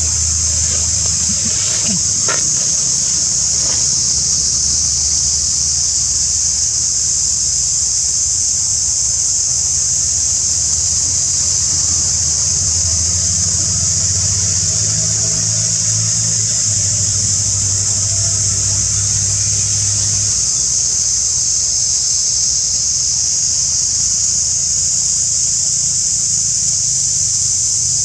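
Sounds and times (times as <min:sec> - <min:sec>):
low engine-like rumble: 0:00.0 - 0:06.6, 0:09.7 - 0:21.1
cicada chorus drone: 0:00.0 - 0:28.0.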